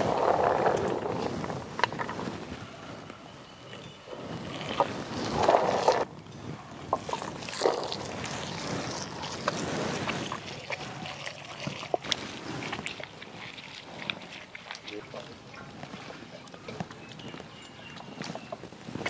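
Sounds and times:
fruit squelching and crunching: 0:04.1 - 0:06.1, 0:06.8 - 0:19.0.

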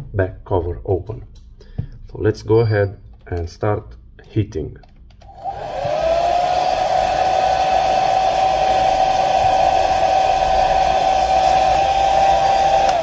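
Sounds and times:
hair dryer running: 0:05.2 - 0:13.0.

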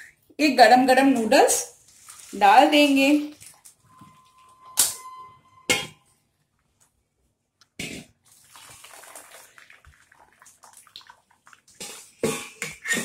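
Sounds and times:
water pouring into colander: 0:01.8 - 0:03.7, 0:08.2 - 0:12.1.

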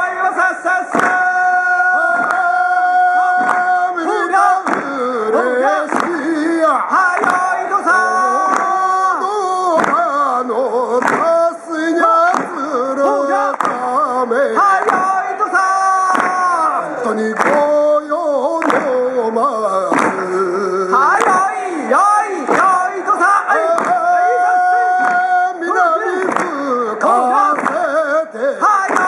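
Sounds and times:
person singing folk song: 0:00.0 - 0:29.0.

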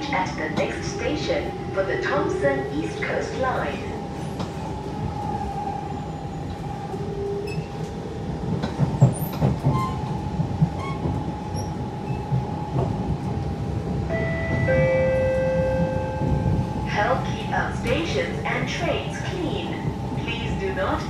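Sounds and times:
train rumble: 0:00.0 - 0:21.0.

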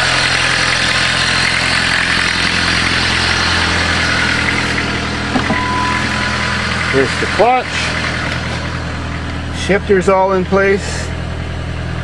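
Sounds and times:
diesel engine idling: 0:00.0 - 0:12.0.

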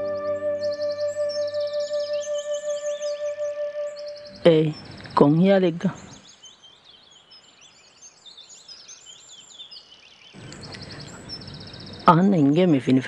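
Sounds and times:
birds chirping: 0:00.0 - 0:13.0
steady background hiss: 0:03.9 - 0:13.0.

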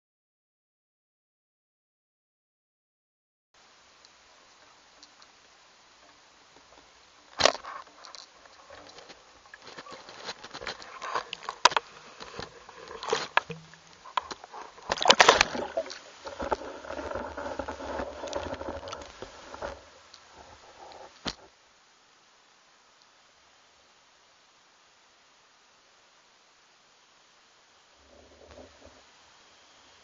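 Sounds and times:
muffled underwater rushing: 0:08.4 - 0:21.4
camera rig splashing into water: 0:09.6 - 0:17.2.

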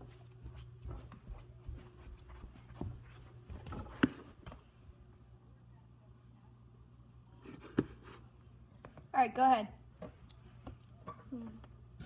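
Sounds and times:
footsteps: 0:00.0 - 0:04.6
low steady hum: 0:00.0 - 0:12.0.

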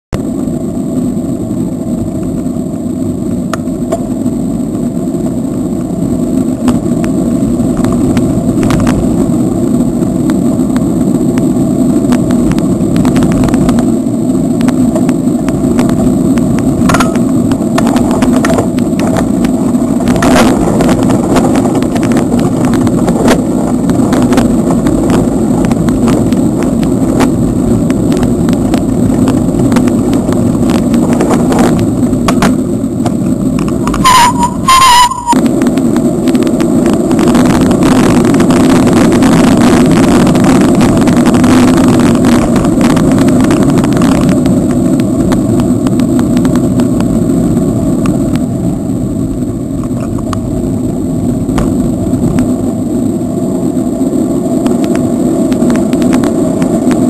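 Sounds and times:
road noise from bicycle: 0:00.1 - 0:57.0
wind buffeting: 0:00.2 - 0:57.0.

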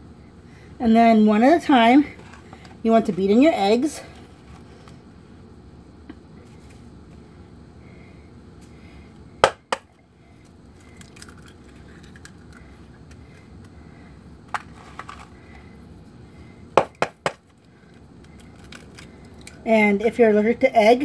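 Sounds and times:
taps on eggshell: 0:09.4 - 0:09.9.

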